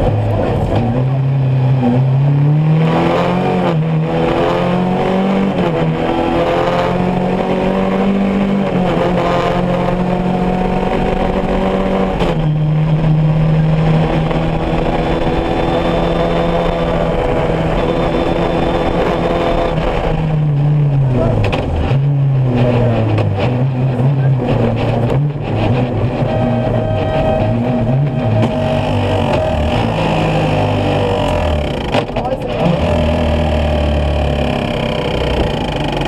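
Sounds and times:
buggy engine under load: 0:00.0 - 0:36.0
wind noise: 0:08.5 - 0:30.4.

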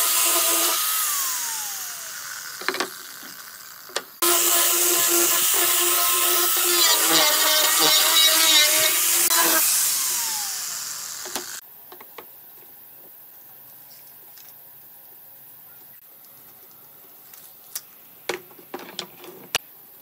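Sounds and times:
angle grinder sanding wood: 0:00.0 - 0:11.6
grinder disc spinning down: 0:00.0 - 0:11.6.

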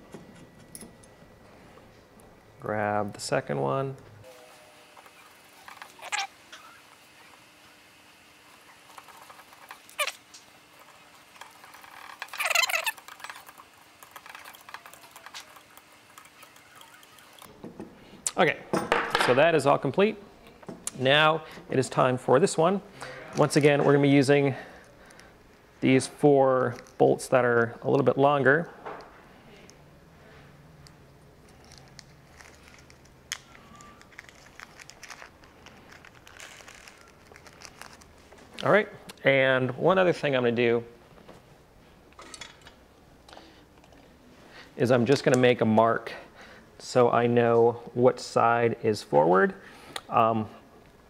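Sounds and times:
faint crinkling: 0:31.4 - 0:38.6.

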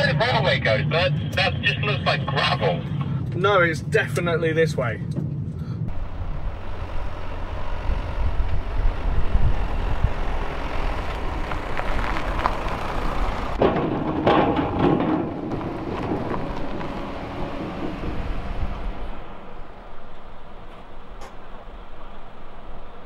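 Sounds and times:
cars driving past: 0:05.3 - 0:23.0.

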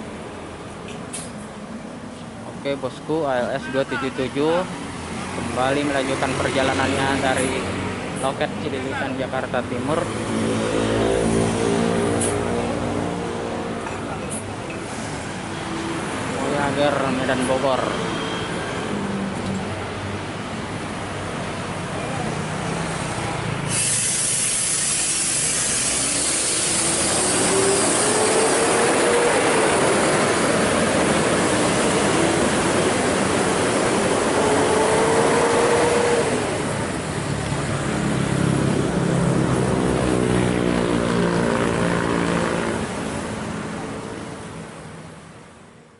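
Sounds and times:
heavy traffic noise: 0:00.0 - 0:45.9
other vehicle engines: 0:00.0 - 0:45.9
bus diesel engine accelerating: 0:05.1 - 0:17.9, 0:18.5 - 0:44.8
burst of air hiss: 0:23.6 - 0:28.8.

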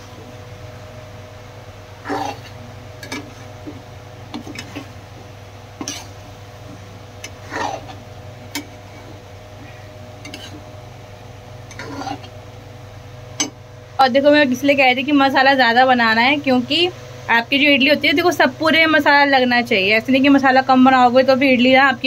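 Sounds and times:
low hum: 0:00.0 - 0:18.2
metal spatula scraping a pan: 0:02.1 - 0:05.0, 0:05.8 - 0:06.2, 0:07.2 - 0:09.2, 0:10.2 - 0:10.6, 0:11.7 - 0:12.3.

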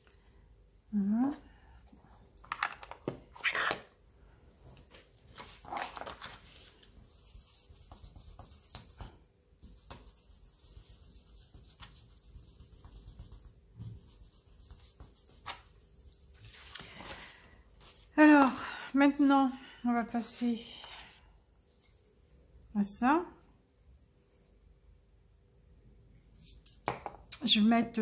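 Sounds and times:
paper and card rustling: 0:04.8 - 0:09.1, 0:14.7 - 0:18.6.

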